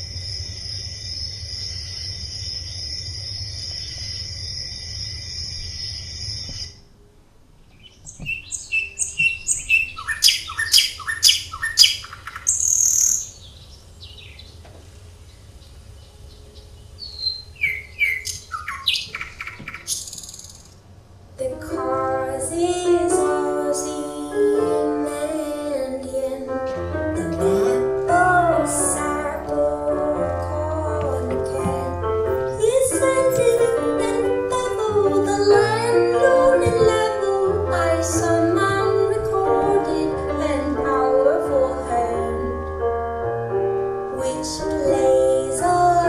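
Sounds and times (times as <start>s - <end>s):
birds chirping: 7.6s - 20.8s
music with gliding melodic lines: 21.4s - 46.0s.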